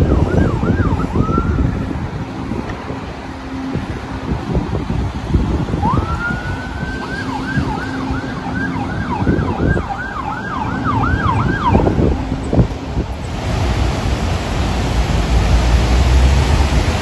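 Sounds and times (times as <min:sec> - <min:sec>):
emergency vehicle siren: 0:00.0 - 0:13.3
wind on microphone: 0:00.0 - 0:17.0.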